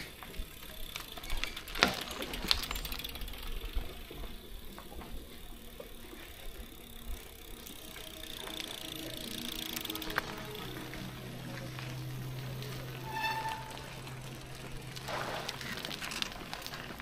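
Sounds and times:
bicycle chain and frame rattling: 0:00.0 - 0:17.0
low rolling rumble: 0:09.9 - 0:17.0.

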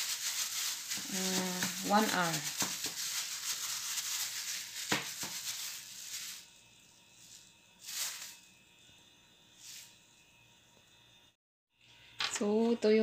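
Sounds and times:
plastic glove crinkling: 0:00.0 - 0:08.5
short hissing rustles: 0:00.0 - 0:08.5, 0:09.5 - 0:10.0.

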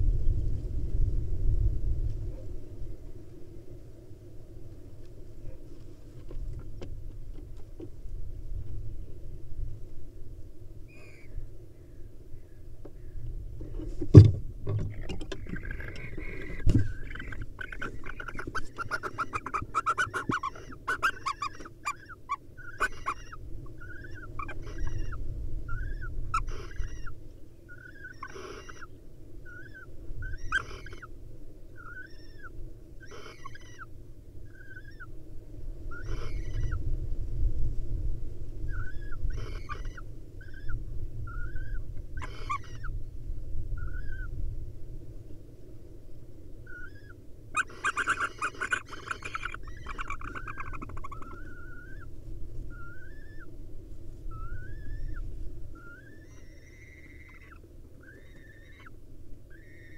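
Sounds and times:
owl hissing calls: 0:10.9 - 0:13.1, 0:14.9 - 0:31.1, 0:31.7 - 0:35.1, 0:35.8 - 0:36.9, 0:38.6 - 0:43.0, 0:43.7 - 0:44.4, 0:46.6 - 0:53.6, 0:54.2 - 0:59.9
owls twittering and chirping: 0:10.9 - 0:13.2, 0:14.7 - 0:31.1, 0:31.7 - 0:35.2, 0:35.8 - 0:36.9, 0:38.6 - 0:43.0, 0:43.7 - 0:44.4, 0:46.6 - 0:53.6, 0:54.2 - 0:59.9
loud thump: 0:14.0 - 0:14.9.

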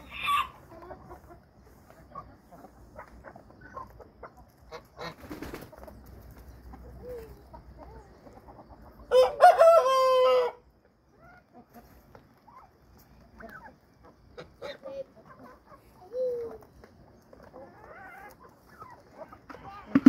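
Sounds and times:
chickens clucking: 0:00.0 - 0:20.0
rooster crowing: 0:09.1 - 0:10.6.

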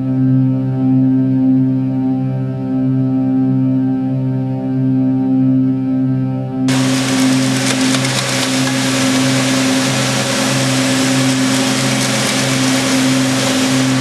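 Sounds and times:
knitting machine whirring and rattling: 0:06.7 - 0:14.0.

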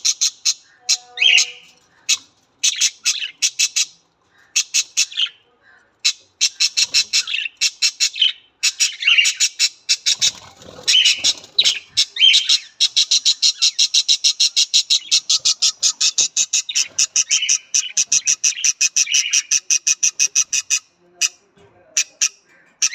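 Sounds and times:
budgerigars chirping and squawking: 0:00.0 - 0:21.4, 0:22.0 - 0:22.9.

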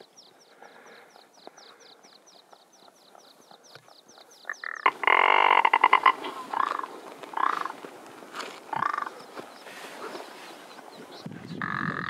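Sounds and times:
bird croaking rattle: 0:04.4 - 0:07.8, 0:08.7 - 0:09.2, 0:11.5 - 0:12.0.

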